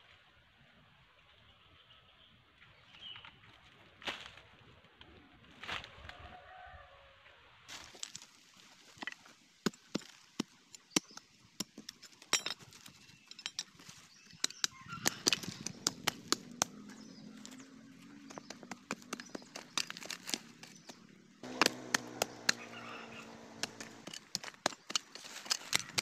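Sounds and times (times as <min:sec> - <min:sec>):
hand hoe scraping stony soil: 0:18.3 - 0:26.0.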